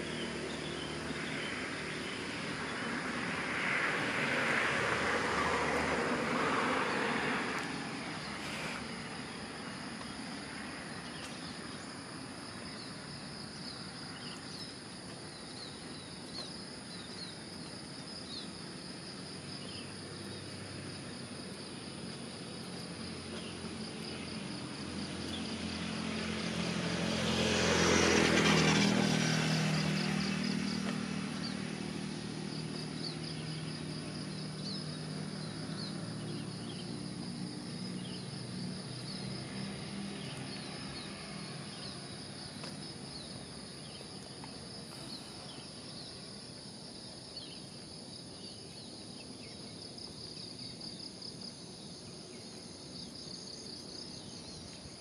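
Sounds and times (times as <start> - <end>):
vehicle passing by: 0.0 - 17.5, 18.3 - 49.4
pulsing insect chorus: 0.0 - 55.0
short insect chirps: 32.4 - 55.0.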